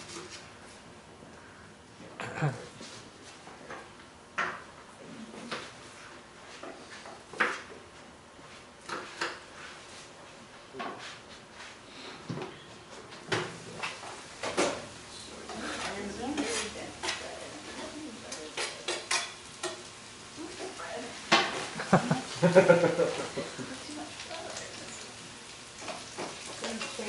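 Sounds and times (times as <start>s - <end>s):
dishes and utensils clattering: 15.4s - 19.9s, 25.8s - 27.0s.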